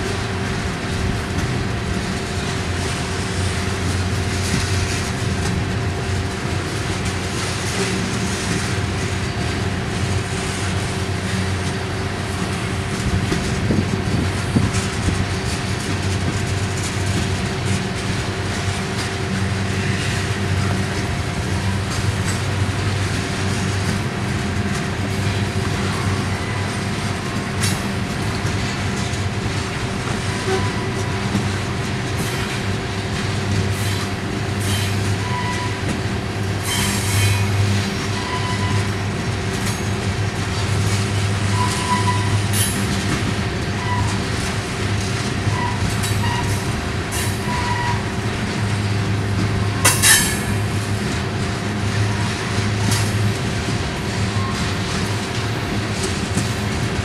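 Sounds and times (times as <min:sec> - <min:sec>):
train wheels rolling on rail: 0:00.0 - 0:57.0
wheel squeals: 0:30.2 - 0:31.2, 0:34.6 - 0:35.9, 0:36.6 - 0:39.0, 0:41.4 - 0:42.6, 0:43.8 - 0:44.2, 0:45.5 - 0:46.6, 0:47.4 - 0:48.1.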